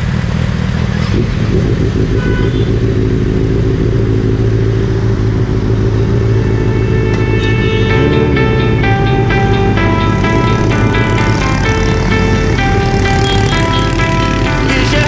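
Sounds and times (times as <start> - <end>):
motorcycle engines idling: 0.0 - 15.0
music: 6.5 - 15.0.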